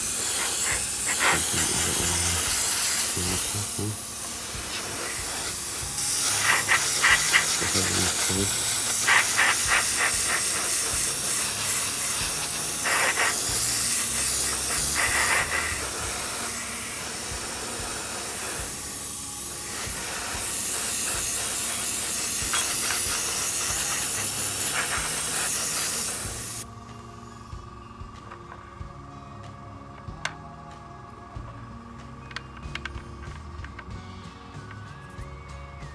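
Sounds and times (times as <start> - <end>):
airbrush spraying hiss: 0.0 - 26.7.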